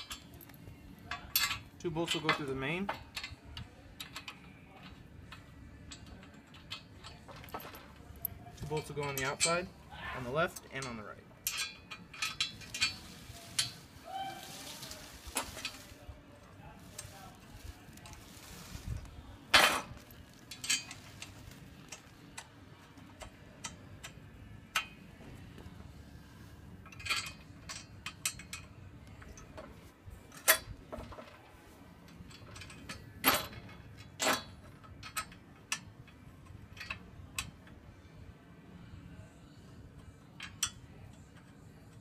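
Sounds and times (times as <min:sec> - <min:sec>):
metal clinks of bolts and nuts: 0:00.0 - 0:09.7, 0:10.5 - 0:13.8, 0:19.6 - 0:25.0, 0:26.8 - 0:29.7, 0:32.1 - 0:37.6.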